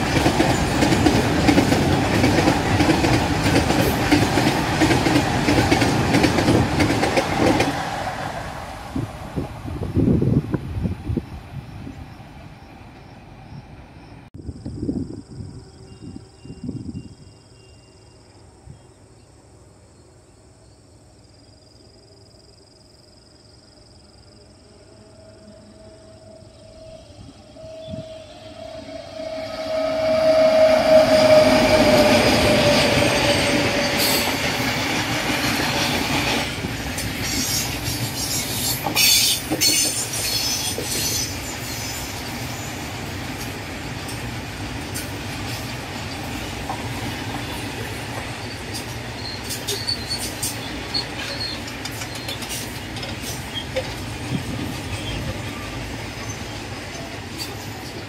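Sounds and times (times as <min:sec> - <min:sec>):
locomotive held tone: 0:24.5 - 0:34.8
short high wheel squeals: 0:26.4 - 0:34.3, 0:48.4 - 0:52.6.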